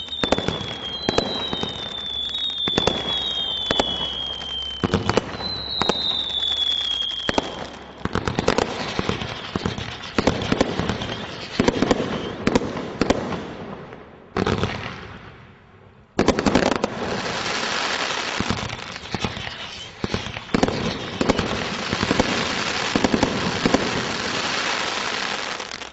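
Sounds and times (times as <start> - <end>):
firework crackling: 0.0 - 13.8, 16.2 - 25.9
firework pops and bangs: 0.0 - 15.3, 16.2 - 25.9
whistling firework shots: 0.0 - 15.4, 16.2 - 25.9.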